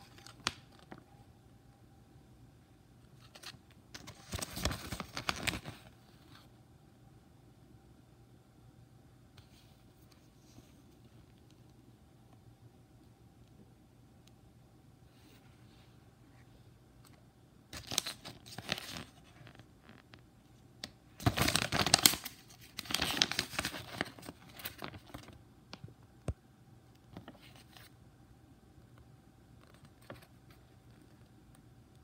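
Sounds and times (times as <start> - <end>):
paper pages rustling: 0.0 - 1.0, 3.2 - 6.5, 17.8 - 20.1, 21.2 - 25.4.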